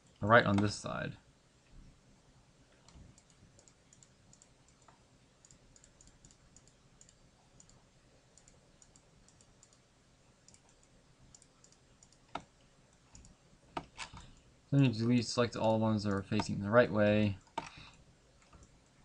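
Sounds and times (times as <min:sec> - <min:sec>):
computer mouse clicks: 0:02.7 - 0:09.8, 0:10.4 - 0:14.4, 0:15.6 - 0:16.6, 0:17.4 - 0:18.8.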